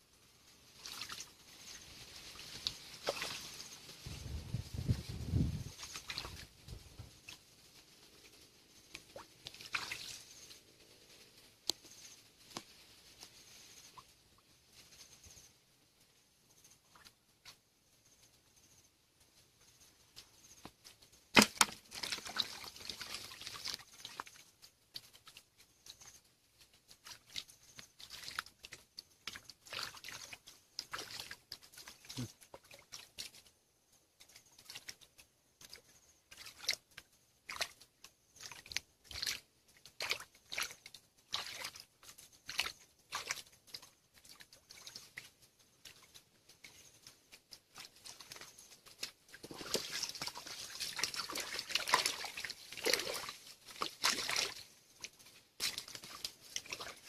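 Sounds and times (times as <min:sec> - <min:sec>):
hands splashing in water: 0:02.6 - 0:03.6, 0:05.8 - 0:06.5, 0:09.0 - 0:10.2, 0:21.3 - 0:24.3, 0:38.4 - 0:45.3, 0:47.7 - 0:57.0.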